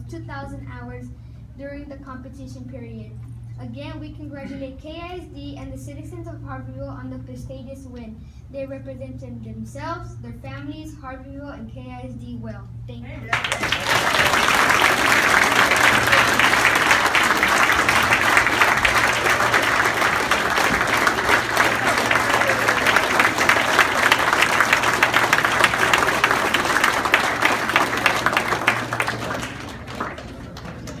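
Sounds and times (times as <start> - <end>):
people applauding: 13.3 - 31.0.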